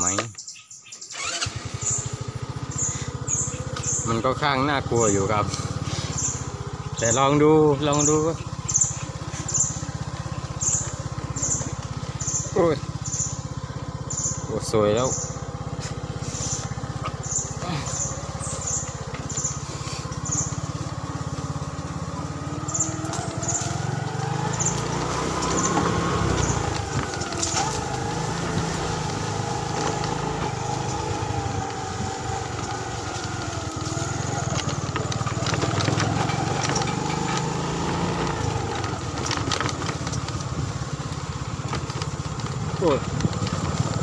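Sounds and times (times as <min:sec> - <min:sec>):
motorcycle engine revving: 0:00.0 - 0:44.0
knocks and clicks from bumps: 0:34.5 - 0:37.8.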